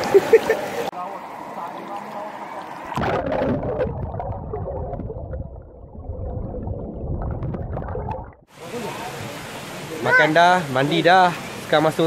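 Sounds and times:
underwater river rushing and gurgling: 0:00.0 - 0:11.9
open-air hiss: 0:08.5 - 0:12.0.

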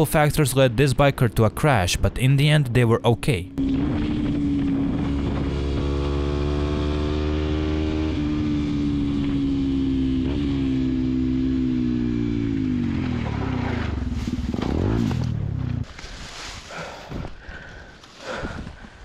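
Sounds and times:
motorcycle engine at high revs: 0:03.5 - 0:15.9.

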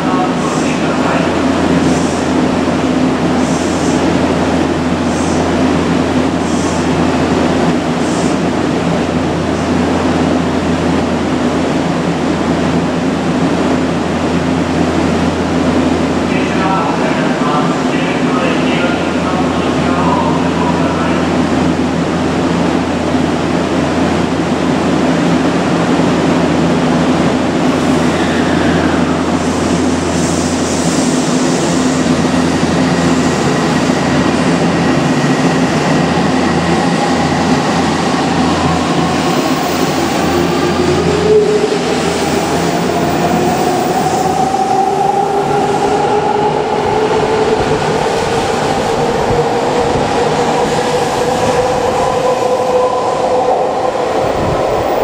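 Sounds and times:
train low hum: 0:00.0 - 0:55.0.

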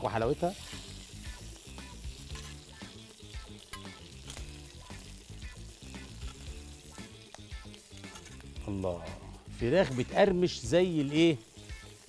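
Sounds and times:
chicken sizzling on grill pan: 0:00.0 - 0:12.0
soft background music: 0:00.0 - 0:12.0.

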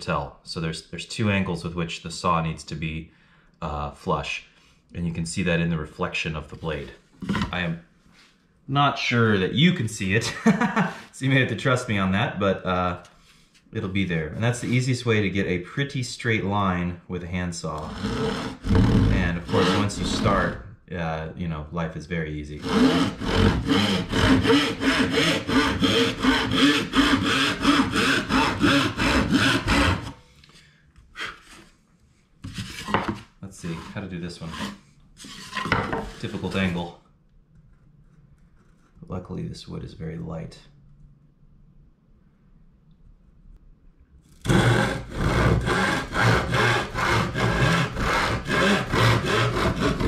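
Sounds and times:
handsaw cutting wood: 0:17.8 - 0:20.6, 0:22.5 - 0:30.2, 0:32.4 - 0:36.7, 0:44.4 - 0:50.0
short scrape: 0:32.4 - 0:36.8.

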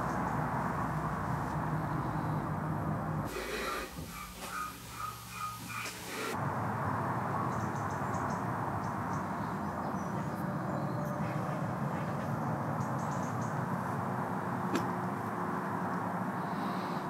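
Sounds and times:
low outdoor rumble: 0:00.0 - 0:17.0
faint bird calls: 0:03.3 - 0:06.4.

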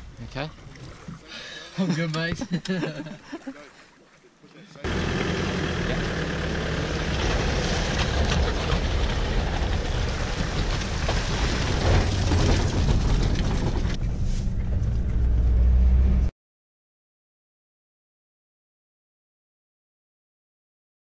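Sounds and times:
water splashing and streaming: 0:00.0 - 0:06.0, 0:09.0 - 0:13.0
vehicle engine pulling trailer: 0:04.8 - 0:16.3.

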